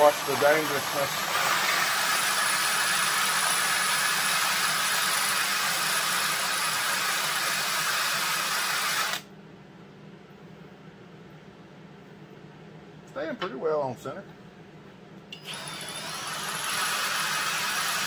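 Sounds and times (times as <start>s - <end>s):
cordless drill boring into metal: 0.0s - 9.2s, 15.4s - 18.0s.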